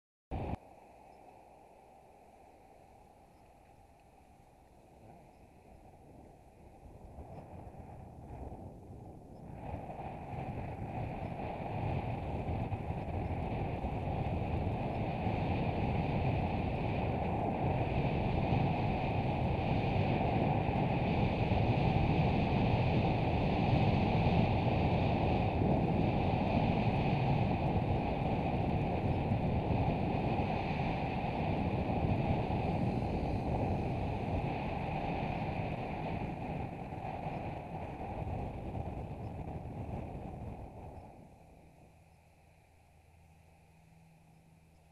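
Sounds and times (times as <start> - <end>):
wind rushing over microphone: 0.3 - 42.7.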